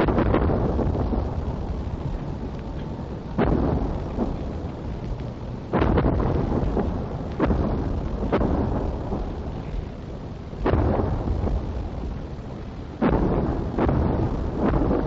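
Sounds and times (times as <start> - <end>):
artillery bangs with long echo: 0.0 - 2.2, 2.8 - 4.7, 5.7 - 9.9, 10.6 - 12.2, 13.0 - 15.0.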